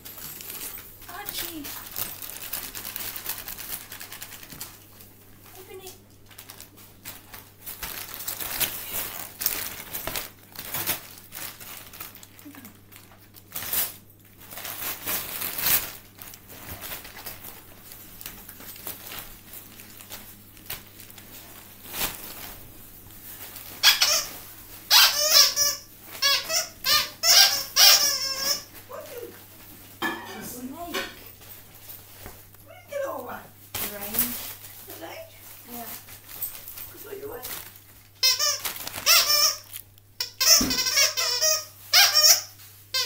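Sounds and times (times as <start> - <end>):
wrapping paper rustling and tearing: 0.0 - 29.8, 31.4 - 43.0.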